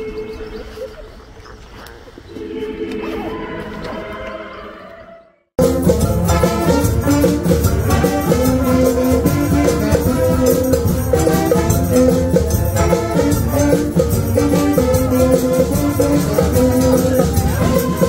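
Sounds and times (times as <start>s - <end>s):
brass band playing lively tune: 5.6s - 18.0s
percussion steady beat: 5.6s - 18.0s.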